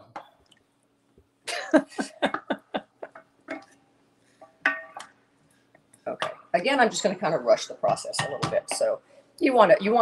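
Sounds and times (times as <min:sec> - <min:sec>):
spoon knocking against pot: 0:04.5 - 0:05.2, 0:07.8 - 0:09.0.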